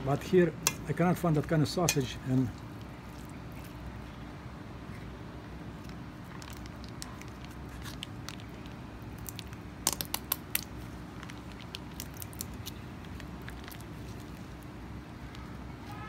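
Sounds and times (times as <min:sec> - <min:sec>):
plastic pouch crackling: 0:05.8 - 0:16.0.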